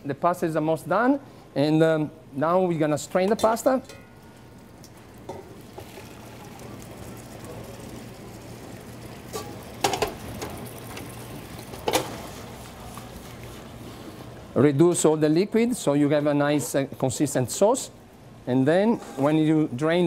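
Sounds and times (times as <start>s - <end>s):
sauce simmering: 4.1s - 14.5s.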